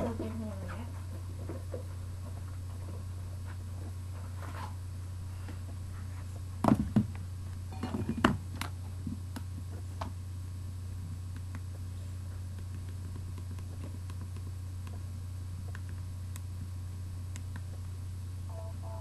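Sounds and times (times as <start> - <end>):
low electrical hum: 0.0 - 19.0
objects knocking and clattering: 7.7 - 8.4.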